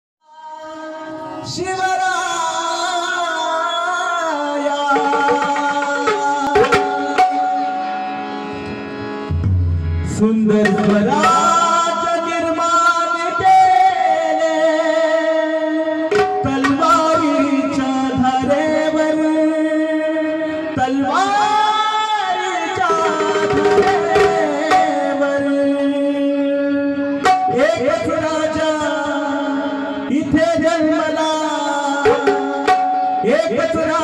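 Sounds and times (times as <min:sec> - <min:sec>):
harmonium melody: 0:00.4 - 0:34.0
tabla strokes: 0:04.8 - 0:12.5, 0:16.0 - 0:17.9, 0:22.7 - 0:26.0, 0:27.1 - 0:28.3, 0:32.0 - 0:34.0.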